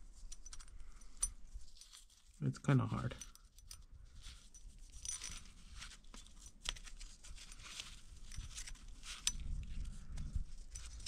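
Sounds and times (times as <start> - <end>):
gloved hands rustling and crinkling: 1.4 - 11.0.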